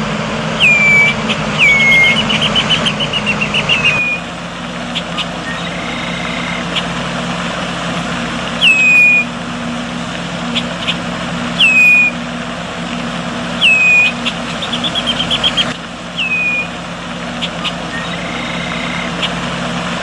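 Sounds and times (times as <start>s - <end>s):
rushing background: 0.0s - 4.3s
low hum: 0.0s - 20.0s
songbird whistling call: 0.5s - 4.3s, 4.9s - 6.9s, 8.6s - 9.4s, 10.5s - 12.2s, 13.6s - 16.8s, 17.4s - 19.4s
bird clicking notes: 8.6s - 9.2s.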